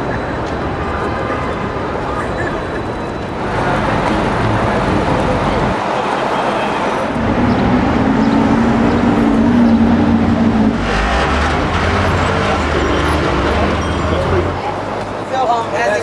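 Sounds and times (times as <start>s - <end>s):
vehicle traffic noise: 0.0s - 16.0s
heavy engine passing: 7.0s - 15.2s
engine humming: 7.1s - 15.2s.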